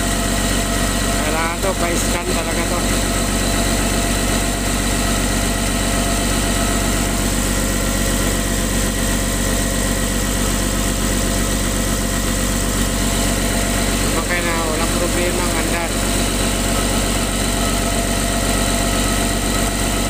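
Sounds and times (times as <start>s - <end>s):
diesel engine idling: 0.0s - 20.0s.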